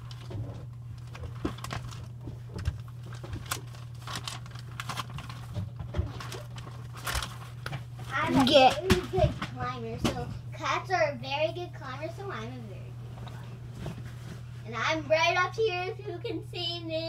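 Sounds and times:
paper pages rustling: 0.0 - 9.2
steady low hum: 0.0 - 17.0.

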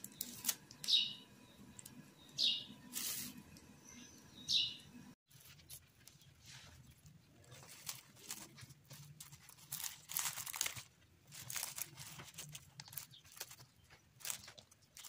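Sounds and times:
cling film crinkling: 0.0 - 0.9, 5.3 - 15.0.

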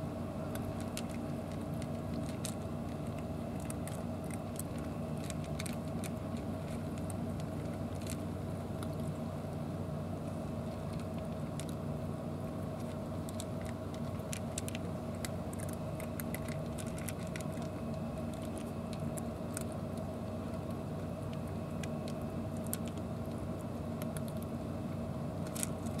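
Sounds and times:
low mechanical hum: 0.0 - 26.0
cats crunching dry kibble: 0.4 - 26.0.

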